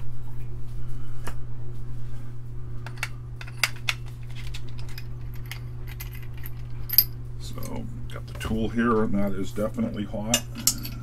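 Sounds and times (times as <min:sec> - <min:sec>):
low hum: 0:00.0 - 0:11.0
small metal tools clinking: 0:02.9 - 0:07.8, 0:10.3 - 0:11.0.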